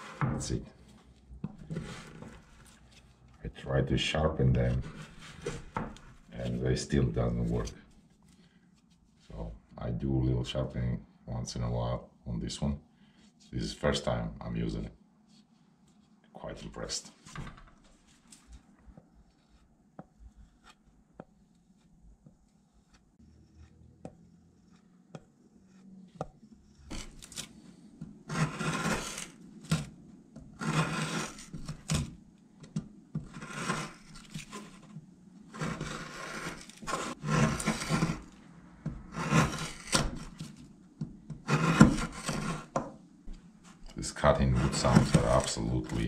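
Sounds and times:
knife shaving wood: 21.6s - 29.9s, 30.6s - 32.1s, 33.2s - 38.4s, 39.1s - 40.7s, 41.3s - 42.8s, 44.0s - 46.0s.

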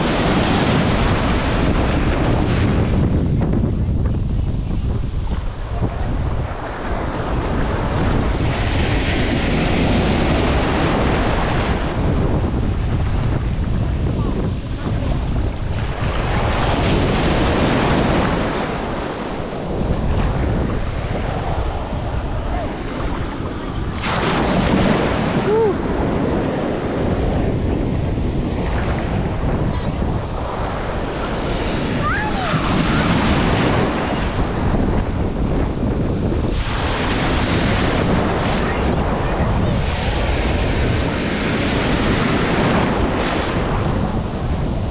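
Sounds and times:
ocean surf breaking: 0.0s - 44.9s
wind rumbling on microphone: 0.0s - 44.9s.

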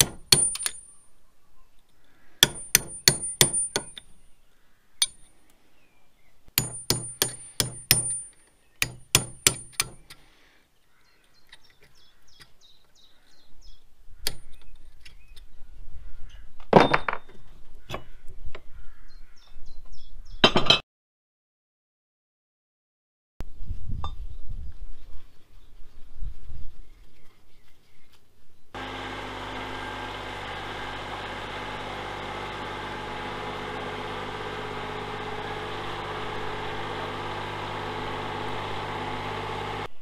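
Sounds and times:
hammer striking steel punch: 0.0s - 0.8s, 2.4s - 4.0s, 6.6s - 10.1s
loud metal knocks: 0.0s - 0.8s, 2.4s - 4.0s, 6.6s - 10.0s.

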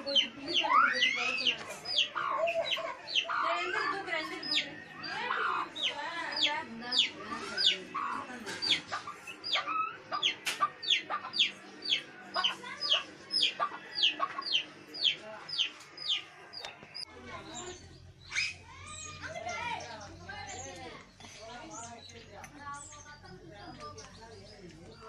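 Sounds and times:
chick peeping: 0.0s - 19.1s.

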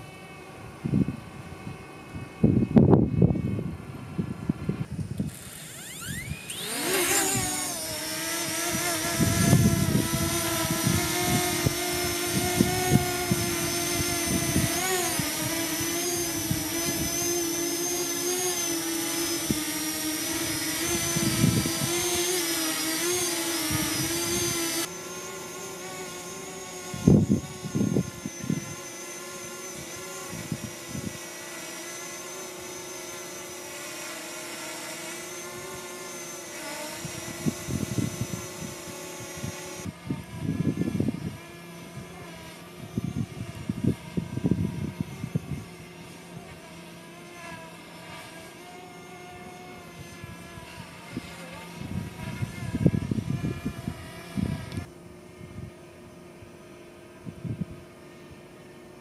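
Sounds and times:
drone propellers whining: 0.0s - 59.0s
wind rumbling on microphone: 0.6s - 17.6s, 20.3s - 22.4s, 26.9s - 28.8s, 37.0s - 45.9s, 50.0s - 55.8s, 57.1s - 58.0s.

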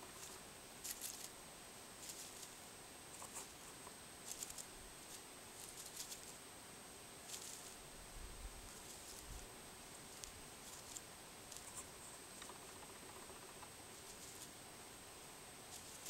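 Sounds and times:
dry leaves and twigs rustling: 0.0s - 1.4s, 2.0s - 6.4s, 7.3s - 8.0s, 8.6s - 14.6s, 15.6s - 16.0s
faint high-pitched whine: 0.0s - 16.0s.

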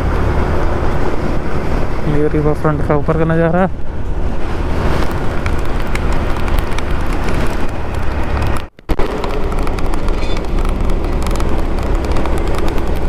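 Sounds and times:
road noise: 0.0s - 13.0s
wind rushing over microphone: 0.0s - 13.0s
motorcycle engine: 3.7s - 13.0s.

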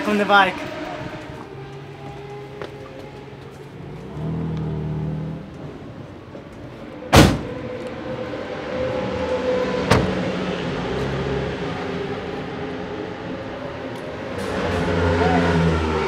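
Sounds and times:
engines running: 0.0s - 16.0s
loud sharp bang: 7.1s - 7.5s.

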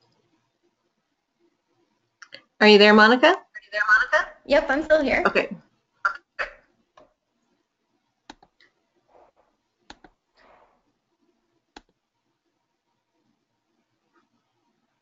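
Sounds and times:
faint sharp clicks: 8.3s - 8.7s
soft rustles: 8.6s - 11.3s.

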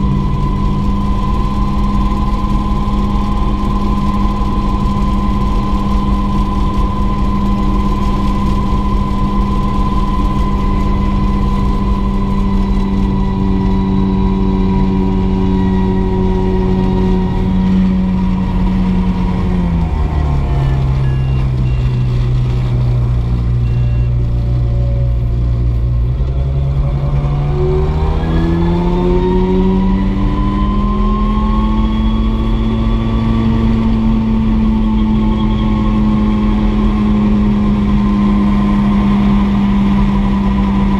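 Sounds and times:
helicopter engine and rotor: 0.0s - 22.1s
turbine whine: 0.0s - 40.9s.

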